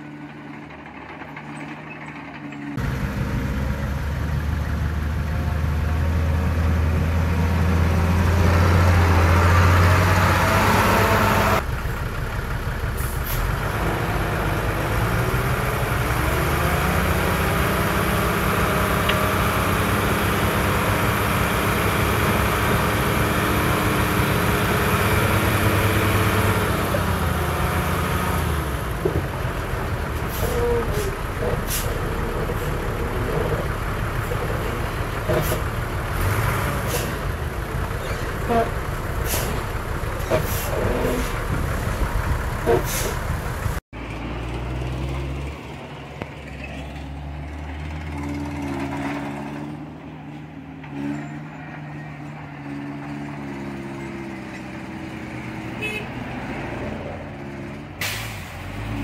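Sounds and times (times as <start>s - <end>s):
heavy diesel engine revving: 2.8s - 45.8s.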